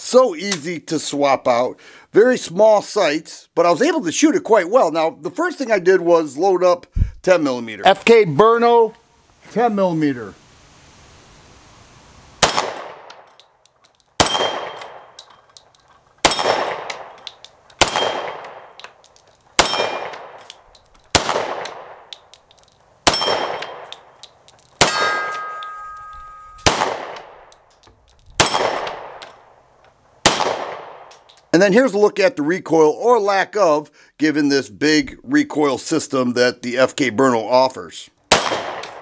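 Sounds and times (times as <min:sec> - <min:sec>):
pistol shots: 0:12.4 - 0:13.3, 0:14.2 - 0:15.2, 0:16.2 - 0:17.2, 0:17.8 - 0:18.8, 0:19.6 - 0:22.1, 0:23.0 - 0:24.1, 0:24.8 - 0:25.5, 0:26.6 - 0:27.5, 0:28.4 - 0:29.2, 0:30.2 - 0:31.2, 0:38.3 - 0:39.0
steel targets ringing: 0:16.3 - 0:20.9, 0:21.6 - 0:27.8.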